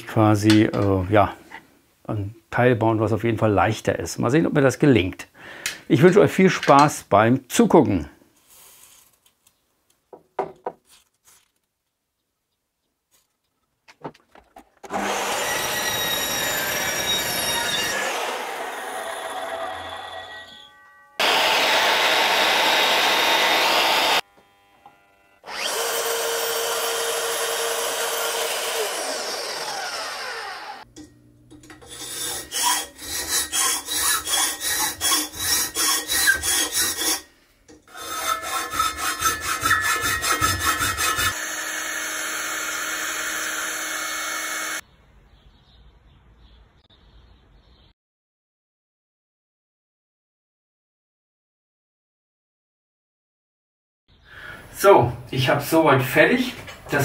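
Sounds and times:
mitre saw cutting metal: 0:14.8 - 0:24.2, 0:25.4 - 0:30.8, 0:31.7 - 0:37.3, 0:37.9 - 0:44.8
hand file rasping metal: 0:31.8 - 0:37.3, 0:37.9 - 0:41.6.

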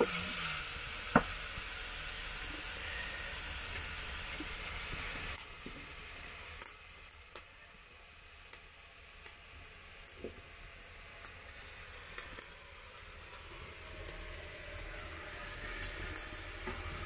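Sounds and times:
greens sizzling in a pot: 0:00.0 - 0:17.0
firewood popping and snapping: 0:04.4 - 0:07.5, 0:08.5 - 0:10.6, 0:11.2 - 0:13.4, 0:14.0 - 0:17.0.

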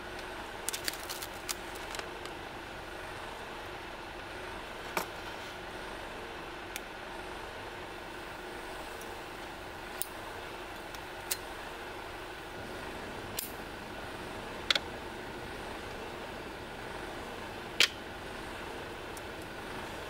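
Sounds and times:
gas stove hissing: 0:00.0 - 0:20.0
stove ignition clicks: 0:10.0 - 0:11.5, 0:13.3 - 0:13.6, 0:17.8 - 0:18.1, 0:19.1 - 0:19.9.

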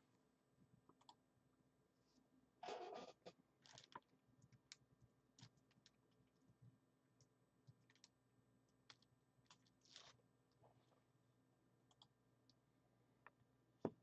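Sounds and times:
faint clicks and ticks: 0:00.6 - 0:01.2, 0:03.7 - 0:11.0, 0:11.8 - 0:12.6.

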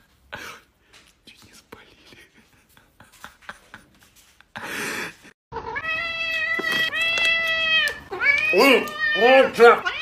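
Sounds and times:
cat meowing: 0:05.5 - 0:10.0.

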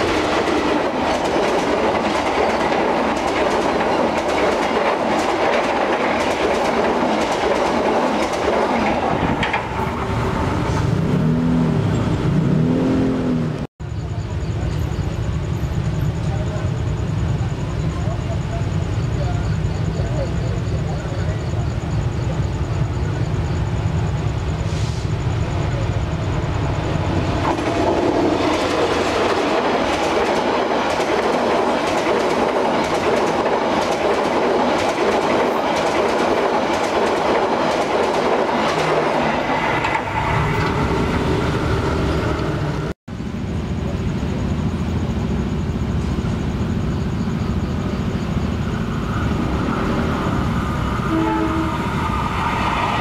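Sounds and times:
train wheels clattering over rail joints: 0:00.0 - 0:10.2, 0:27.2 - 0:41.4
rumble of passing train: 0:00.0 - 0:53.0
train horn: 0:51.1 - 0:52.1.

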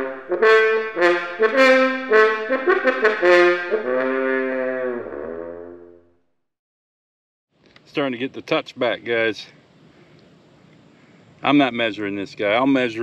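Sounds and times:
trombone and trumpet phrase: 0:00.0 - 0:06.0.

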